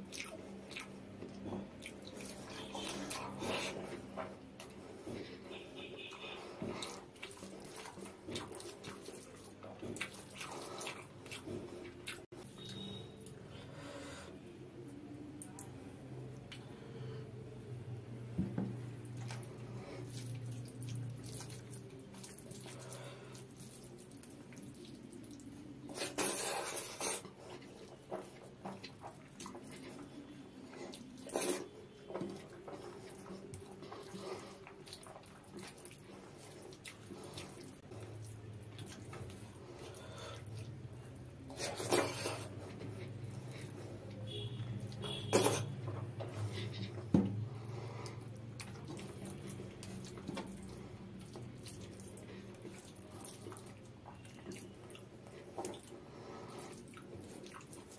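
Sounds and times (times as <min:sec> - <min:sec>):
fingers mixing wet rice: 0:00.0 - 0:13.0, 0:19.1 - 0:57.9
chewing: 0:00.0 - 0:13.5, 0:19.0 - 0:57.9
wet squelches: 0:00.0 - 0:17.7, 0:18.7 - 0:57.9.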